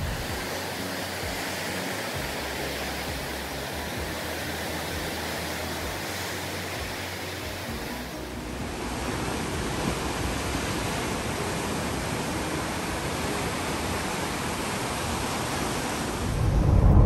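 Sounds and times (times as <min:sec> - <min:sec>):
surf breaking over rocks: 0:00.0 - 0:17.0.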